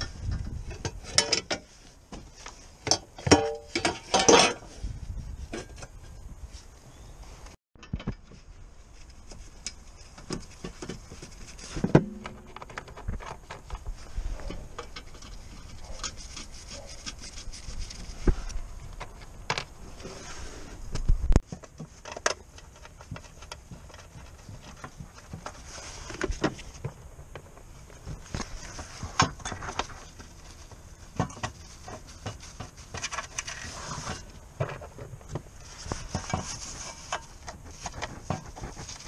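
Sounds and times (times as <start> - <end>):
metal tools clinking and knocking: 0.7 - 1.7.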